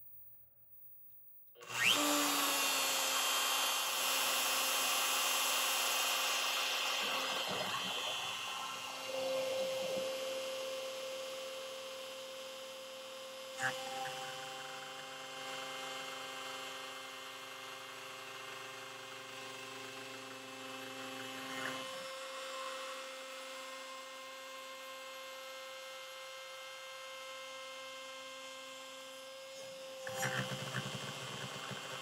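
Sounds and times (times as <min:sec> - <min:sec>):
rough machine noise: 0:01.6 - 0:10.5, 0:29.9 - 0:32.0
router spindle humming: 0:01.6 - 0:32.0.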